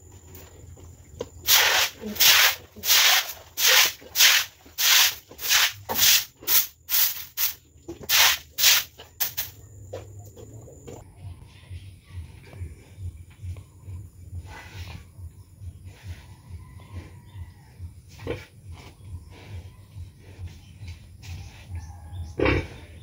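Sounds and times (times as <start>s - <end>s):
brush scrubbing wet floor: 1.5s - 9.4s.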